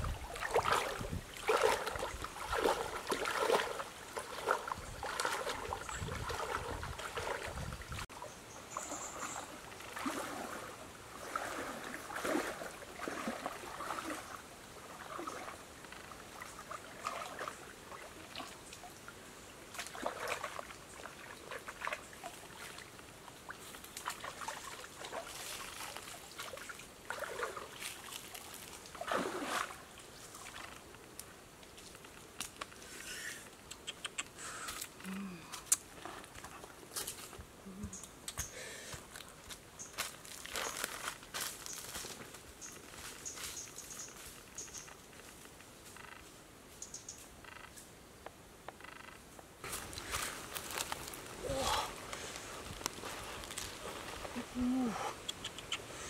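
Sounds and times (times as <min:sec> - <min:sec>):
stream water splashing: 0:00.0 - 0:32.6, 0:39.2 - 0:45.2.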